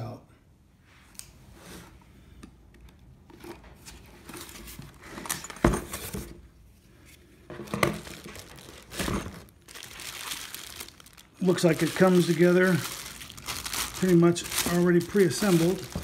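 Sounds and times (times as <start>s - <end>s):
packaging rustling and crinkling: 7.5s - 16.0s.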